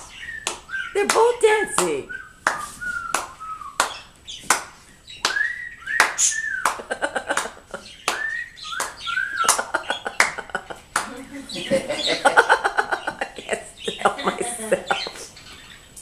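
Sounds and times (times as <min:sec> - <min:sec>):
parrot whistled notes: 0:05.3 - 0:06.6.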